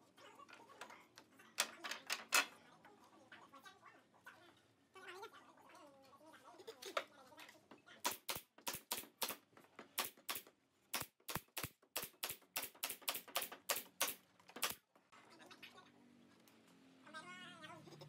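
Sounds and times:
nail gun firing: 8.0s - 9.4s, 10.0s - 14.8s.

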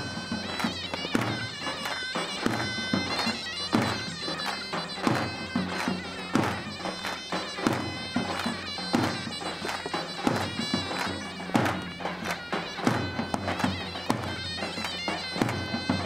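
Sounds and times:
double-reed pipe melody: 0.0s - 16.0s.

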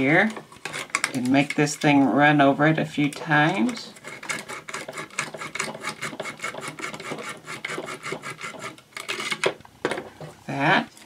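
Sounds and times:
sandpaper scraping metal contact: 3.5s - 8.8s.

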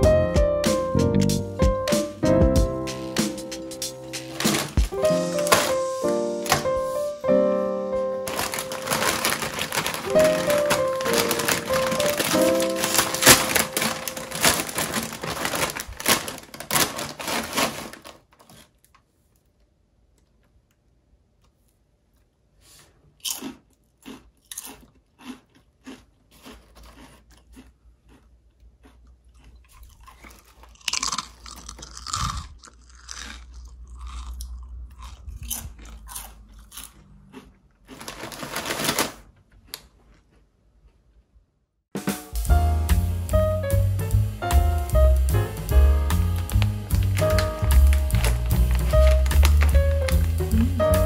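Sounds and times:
chips rustling and crunching: 4.0s - 7.1s, 8.2s - 19.0s, 22.7s - 40.5s, 46.2s - 51.0s
foil bag crinkling: 4.0s - 7.2s, 8.2s - 18.9s, 29.8s - 34.2s, 37.9s - 39.4s, 46.2s - 51.0s.

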